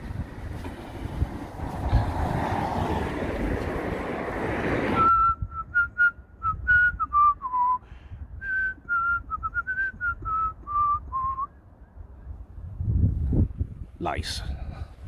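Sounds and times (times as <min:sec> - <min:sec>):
person whistling a tune: 0:05.0 - 0:11.6.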